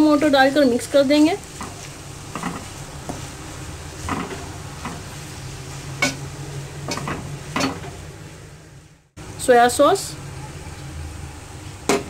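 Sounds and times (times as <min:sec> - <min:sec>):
low sizzle: 0:00.0 - 0:12.0
spatula scraping frying pan: 0:01.2 - 0:08.0.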